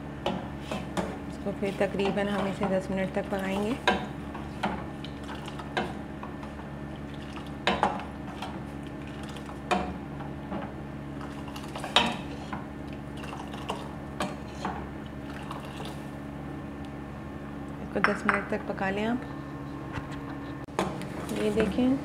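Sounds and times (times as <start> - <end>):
ladle stirring liquid: 0.2 - 16.2
low hum: 16.5 - 20.7.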